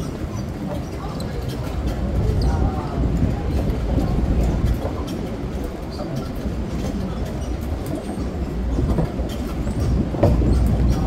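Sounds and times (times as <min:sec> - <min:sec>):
tram rumbling on boardwalk: 0:00.0 - 0:11.0
wheels knocking on planks: 0:07.6 - 0:11.0.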